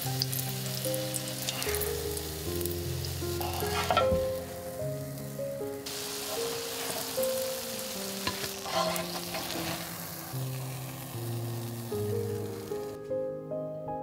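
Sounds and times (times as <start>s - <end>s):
hot oil sizzling in a pan: 0.0s - 13.0s
plastic spatula scraping a pan: 3.3s - 4.4s, 6.2s - 7.4s, 8.2s - 11.0s.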